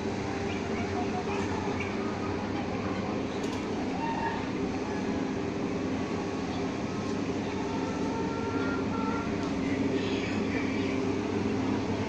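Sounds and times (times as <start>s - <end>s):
chickens clucking: 0.0s - 5.7s, 6.3s - 11.8s
chicken high calls: 3.7s - 5.4s, 7.3s - 11.2s.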